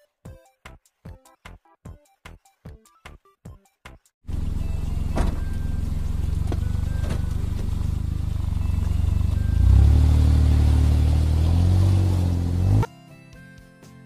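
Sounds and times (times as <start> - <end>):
car engine idling and revving: 4.3 - 12.9.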